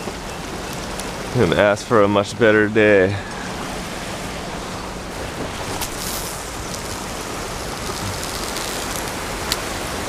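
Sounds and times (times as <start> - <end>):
surf washing against rocks: 0.0 - 10.0.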